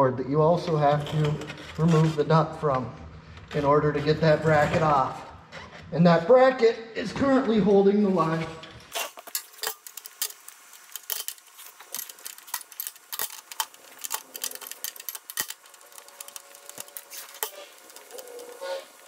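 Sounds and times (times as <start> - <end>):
hand tools clinking on steel: 9.0 - 18.7.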